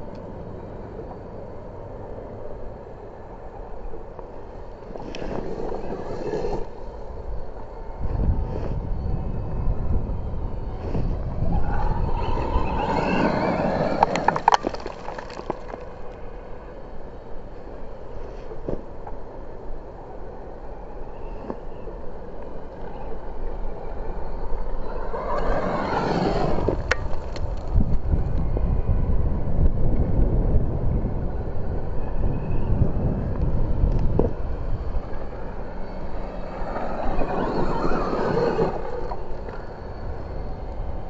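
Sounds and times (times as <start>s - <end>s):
electric motor whining past: 8.0s - 14.2s, 33.6s - 41.0s.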